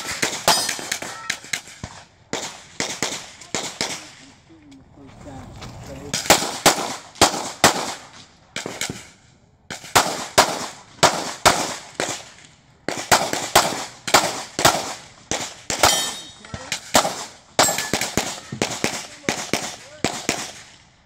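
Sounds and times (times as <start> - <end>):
handgun shots: 13.1 - 20.5.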